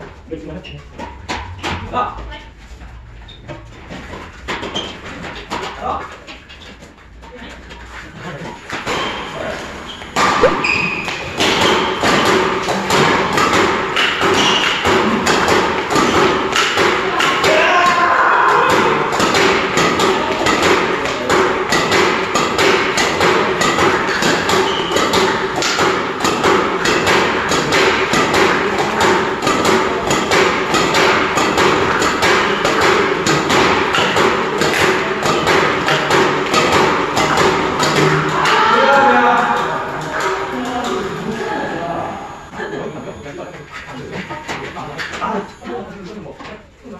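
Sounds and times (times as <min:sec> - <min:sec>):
racket striking shuttlecocks: 0:10.1 - 0:41.1.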